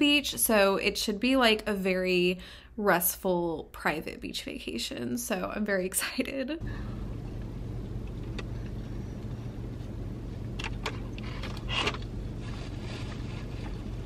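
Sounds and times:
low hum inside car: 6.6s - 14.0s.

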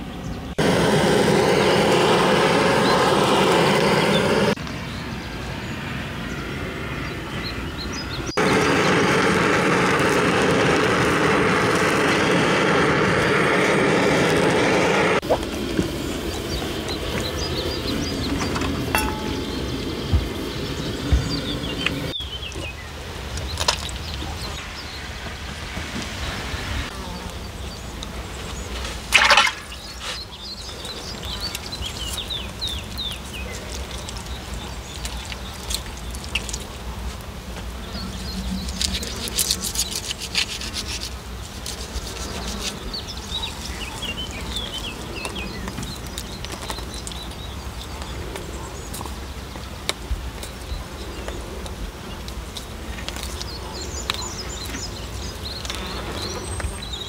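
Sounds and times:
knife scraping and cutting: 38.6s - 42.8s.

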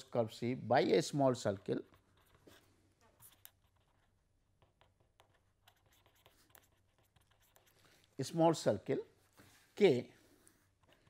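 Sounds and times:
pen writing on paper: 1.9s - 7.8s.

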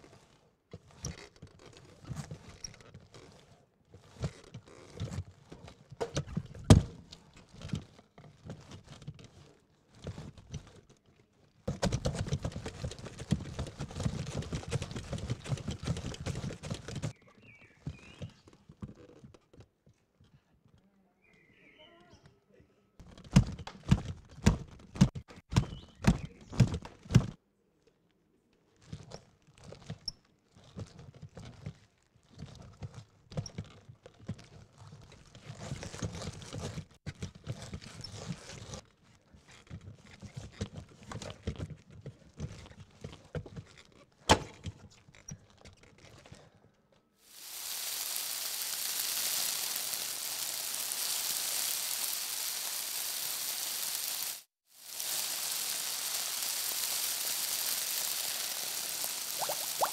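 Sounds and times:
steady hissing noise: 47.3s - 59.9s.

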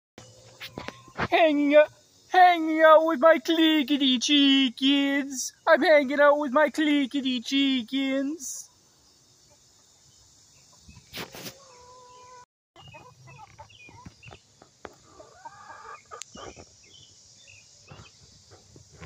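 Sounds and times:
chickens clucking: 0.2s - 1.3s, 9.4s - 17.2s.

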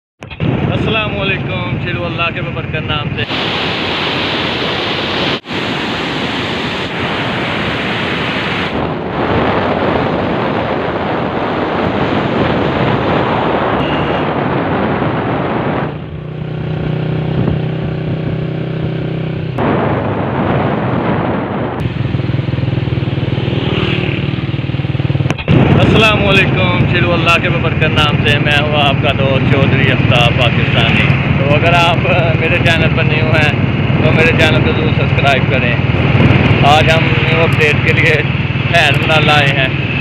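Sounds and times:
wind on microphone: 0.2s - 2.1s, 2.8s - 40.0s.

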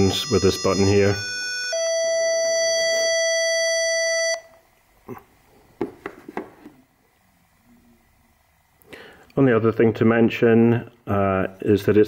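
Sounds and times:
buzzy electronic tuner beep: 0.0s - 4.5s.

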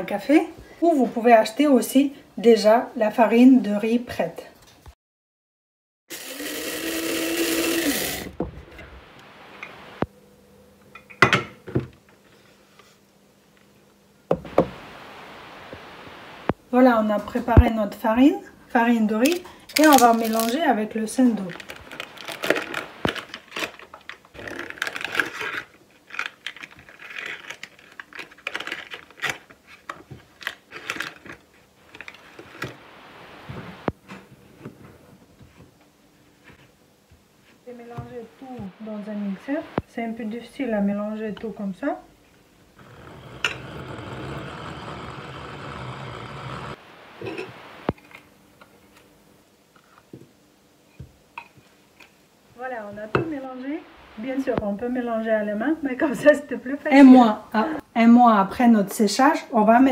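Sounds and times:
coffee grinder motor: 6.1s - 8.4s, 42.8s - 47.9s
paper wrapper crinkling: 19.3s - 32.8s.

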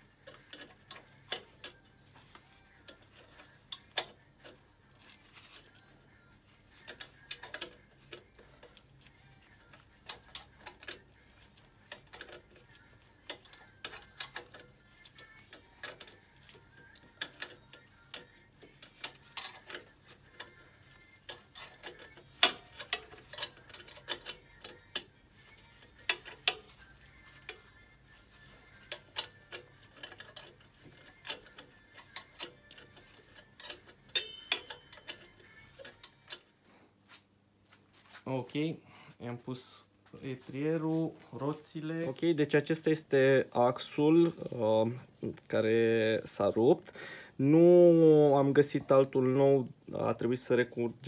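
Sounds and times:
ratchet wrench clicking: 6.9s - 8.8s, 11.8s - 27.7s, 28.4s - 36.4s
metal tools clinking: 11.8s - 36.4s.

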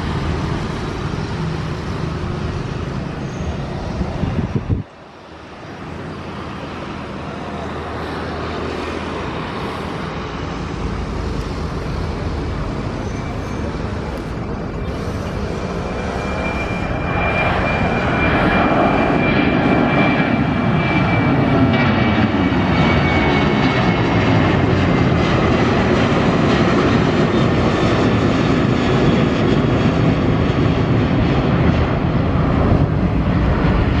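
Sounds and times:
high fan whine: 0.0s - 19.3s
jet engine rumble: 0.0s - 34.0s.

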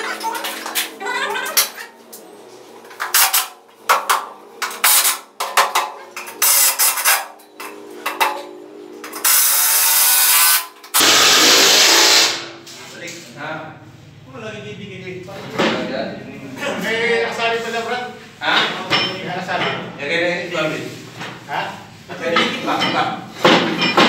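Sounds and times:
loud steady tool noise: 6.1s - 12.7s.

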